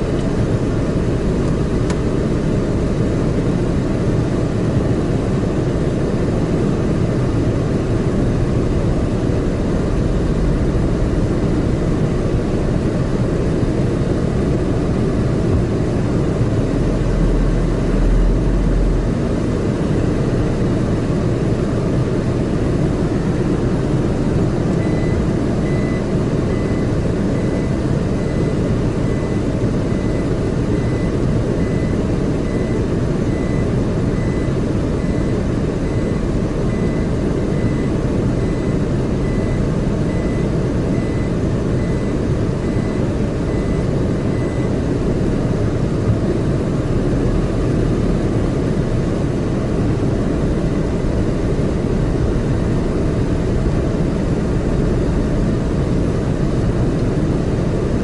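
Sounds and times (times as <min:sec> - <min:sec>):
car engine and tyres rumbling: 0:00.0 - 0:58.0
high beep: 0:24.8 - 0:44.8.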